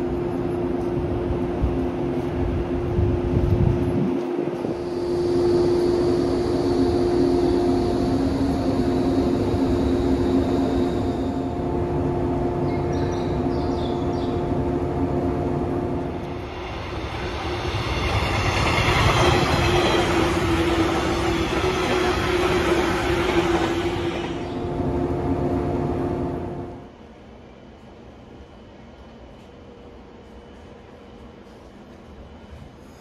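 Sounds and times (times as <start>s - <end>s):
train rushing past: 0.0s - 27.0s
electric train humming: 0.0s - 33.0s.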